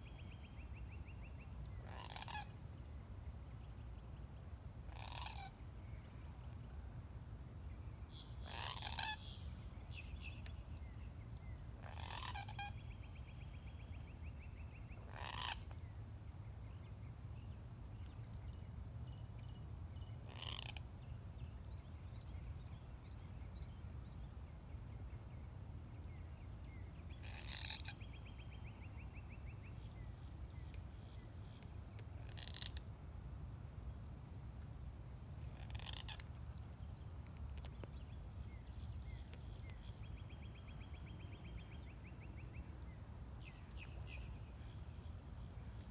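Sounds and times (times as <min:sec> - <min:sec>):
harsh bird calls: 0:01.8 - 0:02.5, 0:08.4 - 0:09.4.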